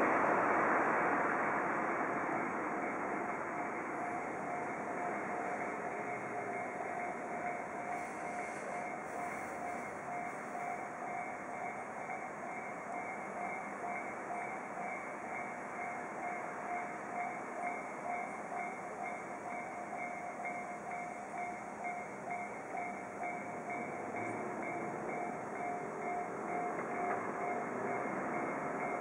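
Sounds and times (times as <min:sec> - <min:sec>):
rushing background noise: 0:00.0 - 0:29.0
railroad crossing bell ringing: 0:02.2 - 0:29.0.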